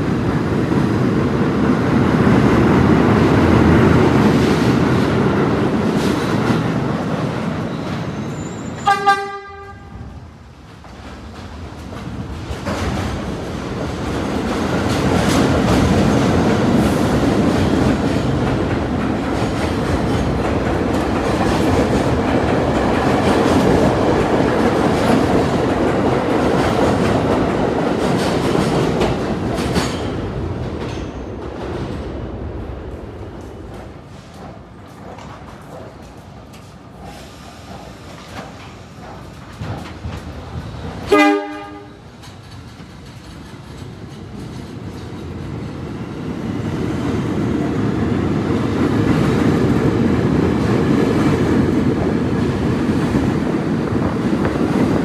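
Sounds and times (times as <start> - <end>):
subway train running on rails: 0.0 - 55.0
train horn toot: 8.4 - 10.2, 41.1 - 42.0.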